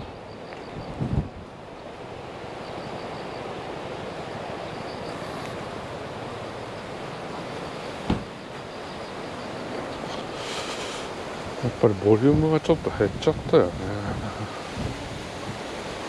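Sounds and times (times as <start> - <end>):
wind rushing on microphone: 0.0 - 16.0
low thump: 8.0 - 8.4.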